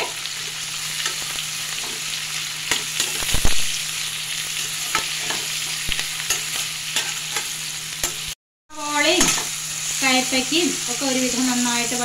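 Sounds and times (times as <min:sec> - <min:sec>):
vegetables sizzling in oil: 0:00.0 - 0:12.0
metal spatula scraping pan: 0:04.6 - 0:08.3.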